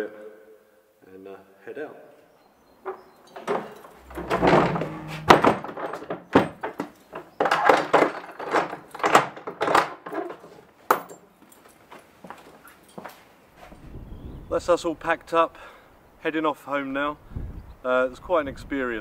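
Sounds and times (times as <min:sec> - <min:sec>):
wooden door closing with thunk: 0:02.9 - 0:10.0.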